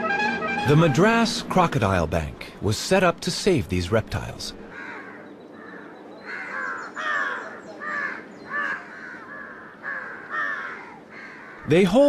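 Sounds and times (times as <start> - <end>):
crows cawing: 4.7 - 11.7.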